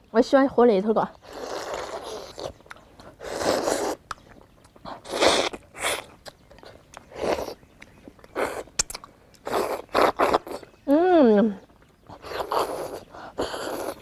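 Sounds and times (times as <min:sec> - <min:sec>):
slurping and sucking: 0:01.1 - 0:04.1, 0:04.9 - 0:06.2, 0:08.3 - 0:10.7, 0:12.1 - 0:14.0
chewing: 0:01.1 - 0:14.0.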